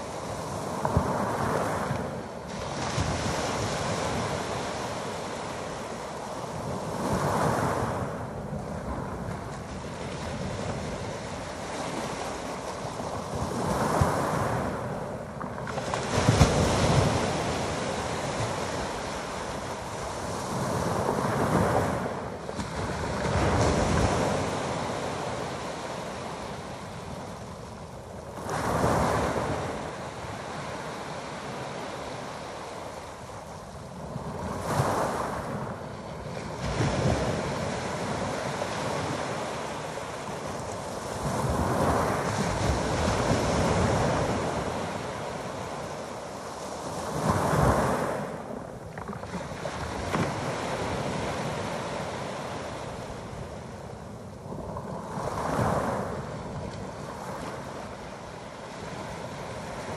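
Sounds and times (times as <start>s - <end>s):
waves breaking on pebble beach: 0.0s - 59.9s.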